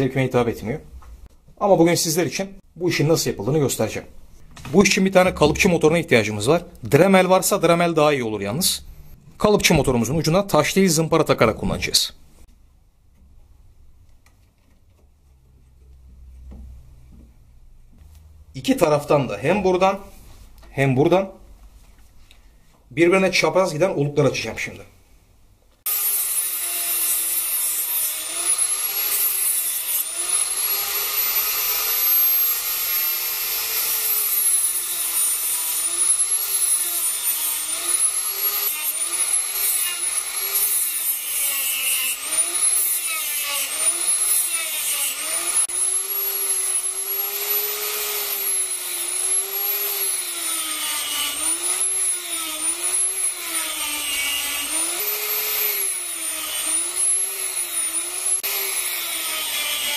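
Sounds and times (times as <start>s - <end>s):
die grinder high whine: 25.9s - 59.9s.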